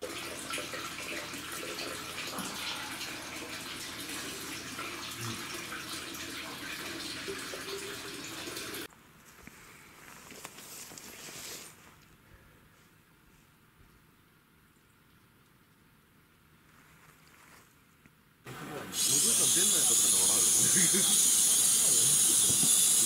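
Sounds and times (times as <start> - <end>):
running water rushing: 0.0 - 8.9, 18.5 - 23.0.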